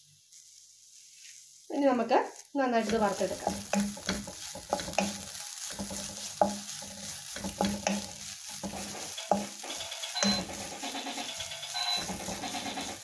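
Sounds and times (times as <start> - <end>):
frying hiss: 0.0 - 13.0
spatula scraping pan: 2.8 - 13.0
spatula knocking against pan: 2.9 - 13.0.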